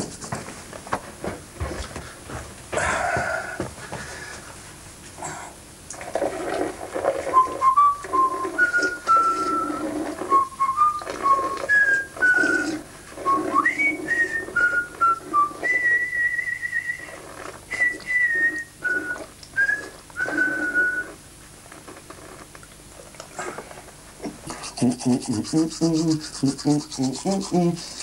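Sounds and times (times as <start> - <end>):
person whistling a tune: 7.3 - 17.1, 17.7 - 21.2.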